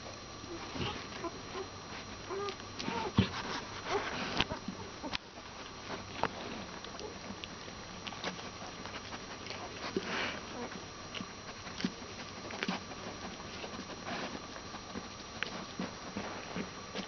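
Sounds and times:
dog snuffling: 0:00.4 - 0:17.0
puppies suckling wet clicks: 0:02.2 - 0:17.0.

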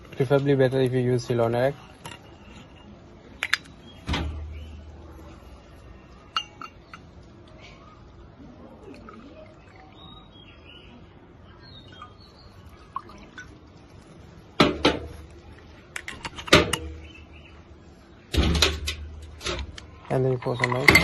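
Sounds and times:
birds chirping: 0:00.0 - 0:21.0
metal and glass clinking: 0:06.2 - 0:07.1, 0:18.4 - 0:21.0.

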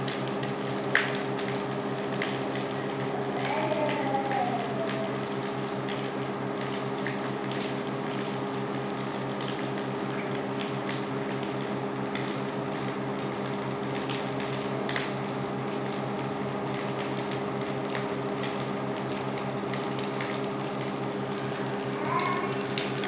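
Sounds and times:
cooktop electrical hum: 0:00.0 - 0:23.0
fan noise: 0:00.0 - 0:23.0
small crackle: 0:00.0 - 0:23.0.

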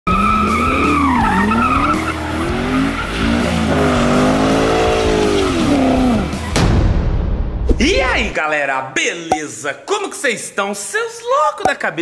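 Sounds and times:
tyres squealing on pavement: 0:00.1 - 0:06.5
car engine revving: 0:00.1 - 0:06.6.

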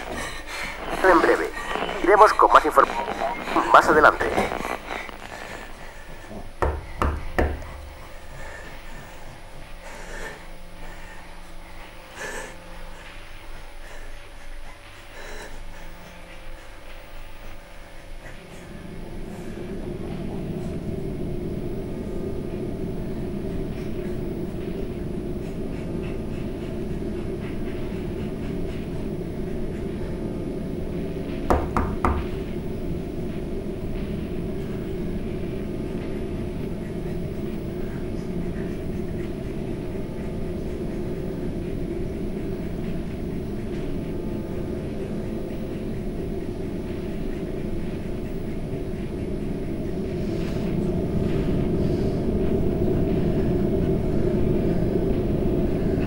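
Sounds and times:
low rumbling drone: 0:00.0 - 0:56.0
sharp knocks: 0:06.6 - 0:07.7, 0:31.5 - 0:32.3.

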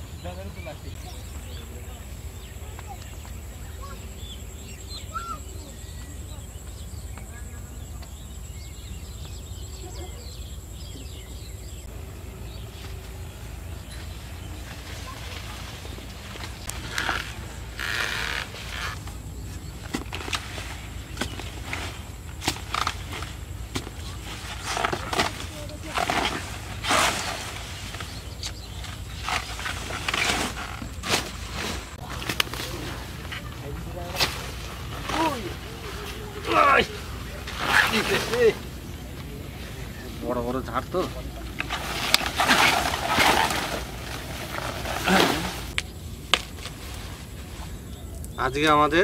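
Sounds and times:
small birds chirping: 0:00.0 - 0:49.0
soil and roots tearing: 0:12.9 - 0:38.6, 0:41.4 - 0:48.4.

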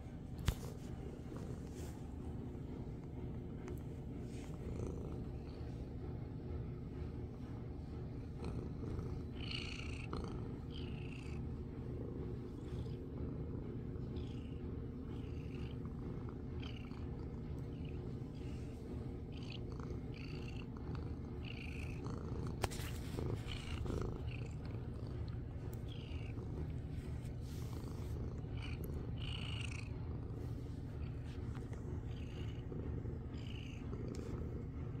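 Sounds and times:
cat purring: 0:00.0 - 0:35.0
brushing sounds: 0:22.6 - 0:23.5.

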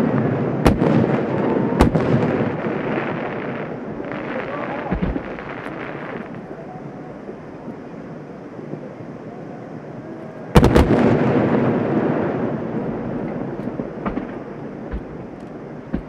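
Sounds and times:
long rolling rumble: 0:00.0 - 0:16.0
firework shells bursting: 0:03.4 - 0:06.5, 0:12.9 - 0:16.0
faint pops: 0:04.9 - 0:06.4, 0:13.2 - 0:16.0.

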